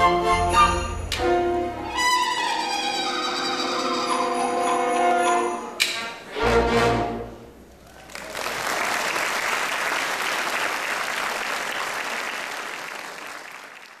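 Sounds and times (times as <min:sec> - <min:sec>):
audience applauding: 0:07.8 - 0:14.0.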